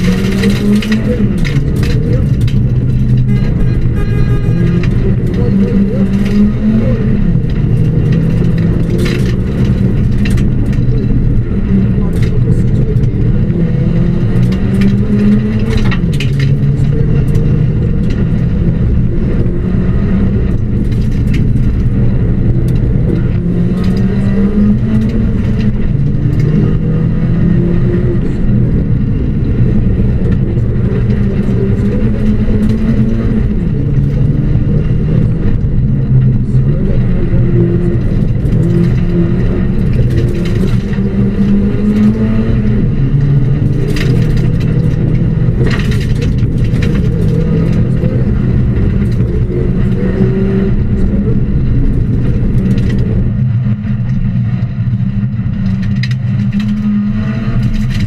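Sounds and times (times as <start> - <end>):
car engine revving: 0.0 - 58.0
clicks and knocks from car body: 43.2 - 49.9.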